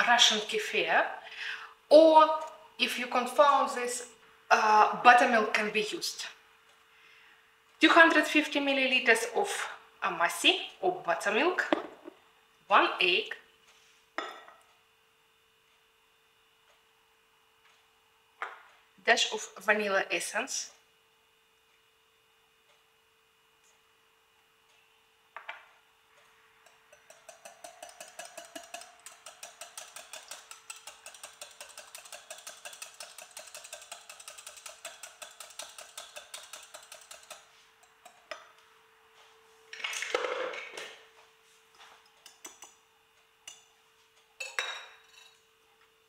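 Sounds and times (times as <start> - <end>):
faint steady hum: 0.0 - 46.0
whisk clicking against glass: 26.6 - 38.5, 42.2 - 42.8.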